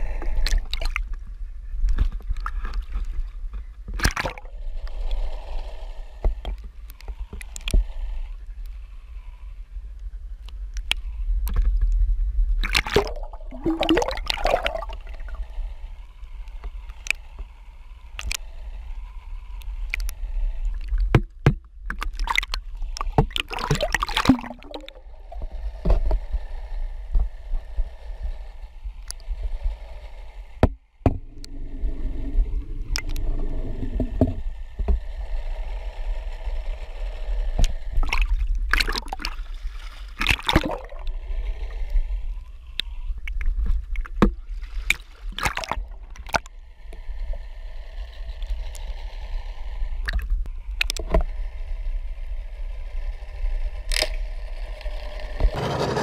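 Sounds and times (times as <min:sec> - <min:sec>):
muffled water sloshing: 0:00.0 - 0:01.2, 0:12.6 - 0:15.4, 0:20.8 - 0:25.2, 0:30.6 - 0:34.4, 0:38.0 - 0:41.1, 0:43.9 - 0:46.5
sharp splashes and knocks: 0:04.0 - 0:04.5, 0:12.6 - 0:15.0, 0:21.1 - 0:24.9, 0:40.2 - 0:40.9, 0:44.2 - 0:46.5
heavy low rumble: 0:23.8 - 0:38.7.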